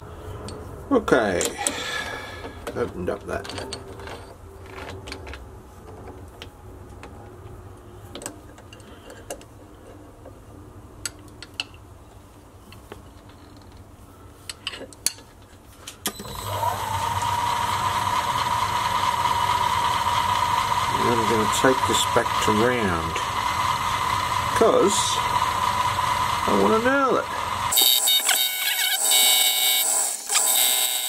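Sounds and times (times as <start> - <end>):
metal clicks and taps: 11.0 - 11.8
lathe motor whine: 16.2 - 31.0.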